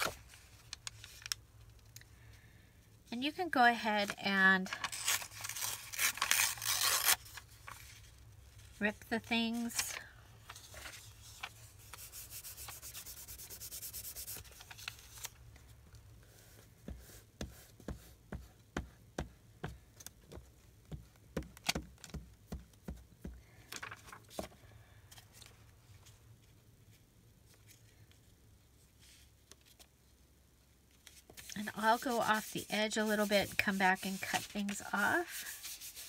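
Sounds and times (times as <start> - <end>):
paper smoothed by hand: 11.2 - 14.9, 31.5 - 36.0.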